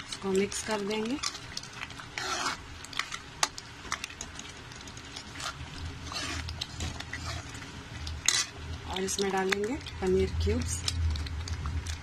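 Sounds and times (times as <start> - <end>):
spoon stirring thick sauce: 0.0 - 12.0
spoon scraping pan: 2.0 - 3.6, 5.2 - 9.4.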